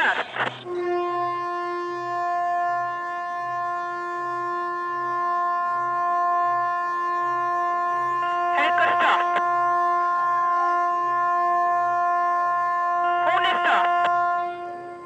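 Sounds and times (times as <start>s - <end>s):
ship's horn blast: 0.6s - 15.0s.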